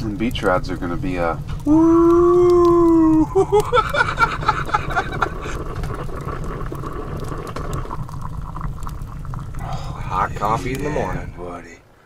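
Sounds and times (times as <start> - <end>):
coffee percolator bubbling: 0.0 - 11.7
low rumble: 0.0 - 12.0
coffee pouring into mug: 3.5 - 11.4.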